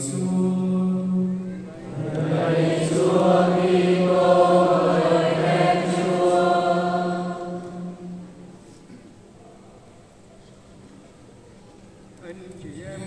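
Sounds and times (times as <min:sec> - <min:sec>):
voices chanting in unison: 0:01.8 - 0:08.6.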